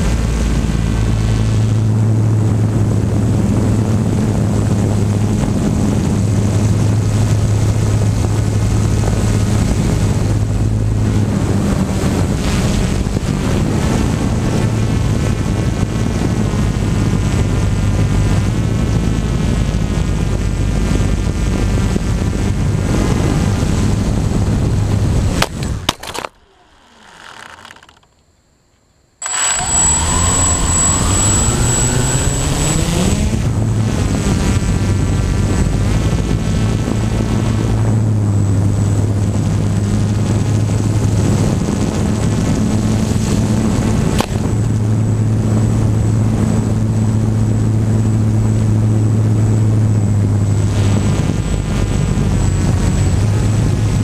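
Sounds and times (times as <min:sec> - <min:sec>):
drone motor hum: 0:29.2 - 0:37.5.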